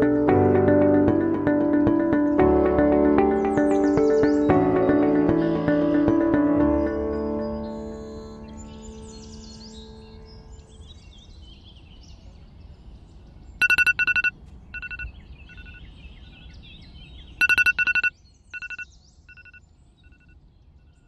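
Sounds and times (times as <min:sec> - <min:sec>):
birds chirping: 0:02.0 - 0:21.0
alarm beeping: 0:13.6 - 0:15.8, 0:17.4 - 0:20.3.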